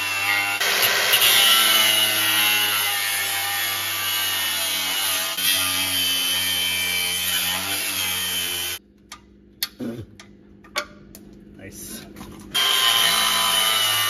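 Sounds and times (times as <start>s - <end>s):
angle grinder cutting steel: 0.0s - 8.8s, 12.6s - 14.0s.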